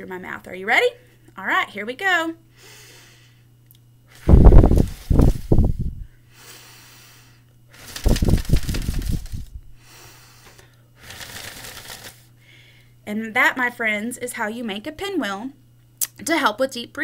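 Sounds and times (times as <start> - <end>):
breath gusts on microphone: 4.2 - 6.1.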